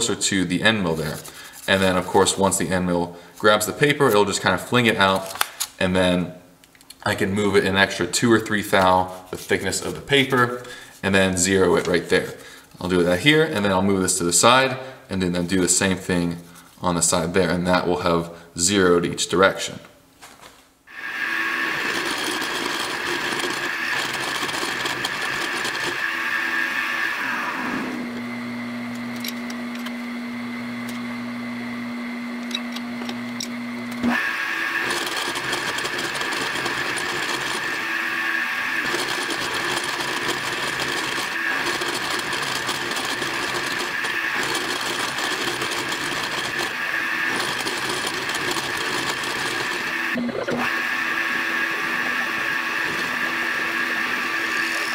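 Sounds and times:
milling machine cutting whine: 20.9s - 54.9s.

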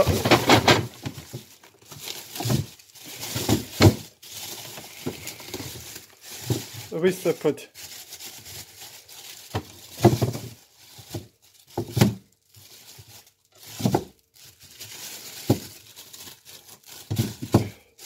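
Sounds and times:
carrots knocking into plastic drawer: 0.0s - 1.4s, 17.1s - 17.8s
plastic bag crinkling: 0.0s - 18.0s.

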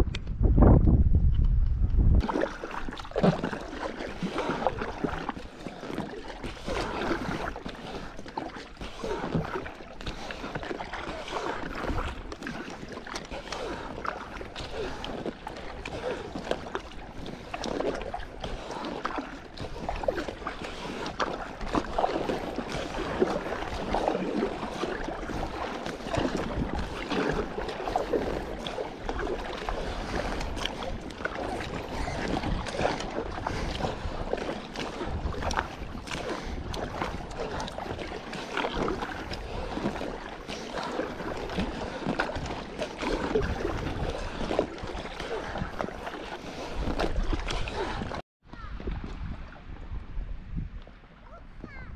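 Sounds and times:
wind rumble on microphone: 0.0s - 3.5s, 21.5s - 40.2s, 41.0s - 51.9s
water sloshing around kayak: 1.9s - 51.9s
kayak paddle splashing in water: 2.2s - 51.8s.

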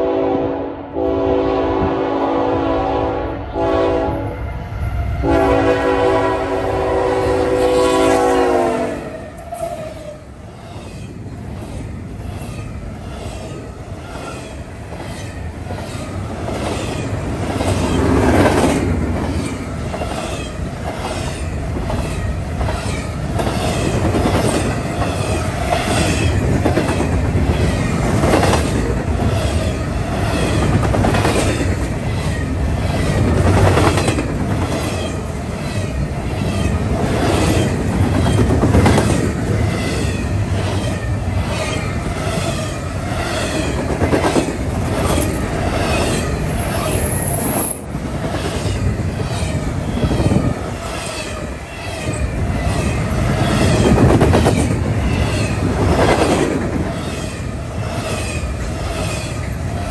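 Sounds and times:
locomotive air horn: 0.0s - 4.5s, 5.1s - 9.1s
train rushing by: 0.0s - 59.9s.

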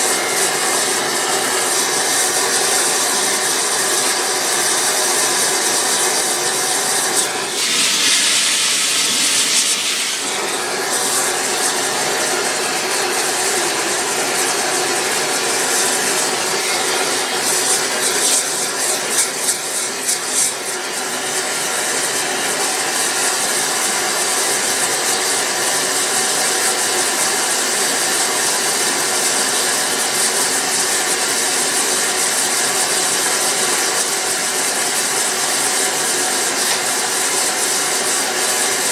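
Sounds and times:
furnace flame hissing: 0.0s - 13.5s.

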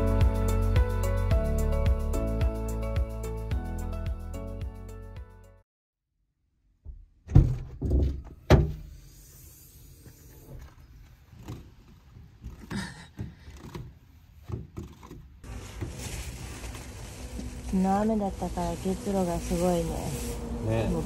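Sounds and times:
loud thumps: 6.8s - 8.9s.

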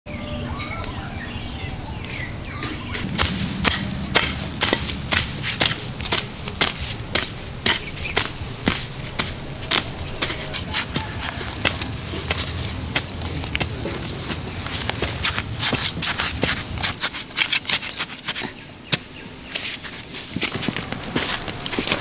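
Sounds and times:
faint birds chirping: 0.1s - 5.2s, 5.8s - 15.2s, 18.4s - 20.3s.

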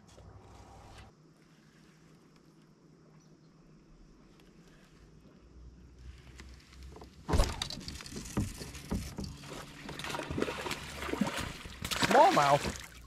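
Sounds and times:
fish splashing at surface: 9.5s - 13.0s.

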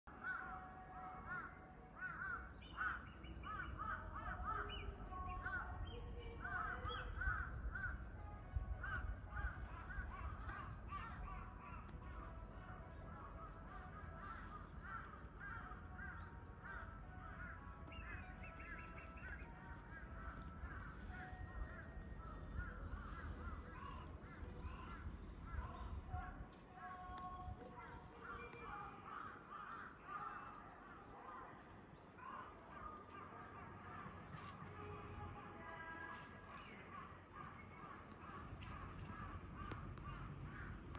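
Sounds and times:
crows cawing: 0.1s - 5.7s, 6.4s - 8.1s, 8.8s - 12.3s, 13.4s - 26.0s, 27.9s - 30.7s, 36.5s - 40.9s.

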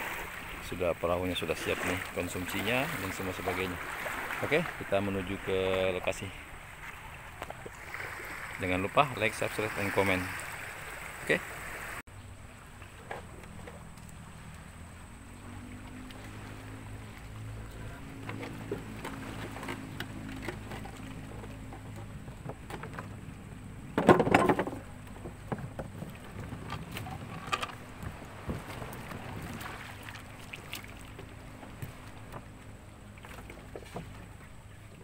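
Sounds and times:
boat engine idling: 0.0s - 35.0s
knocks and clatter on hull: 17.2s - 35.0s.

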